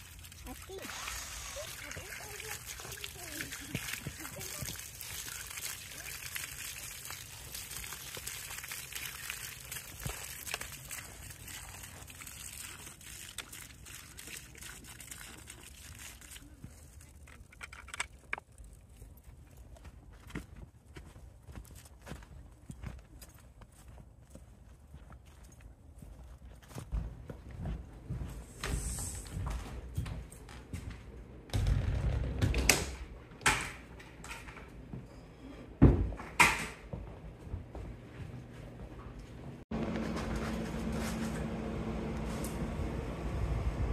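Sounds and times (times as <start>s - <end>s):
water running and splashing: 0.0s - 17.8s.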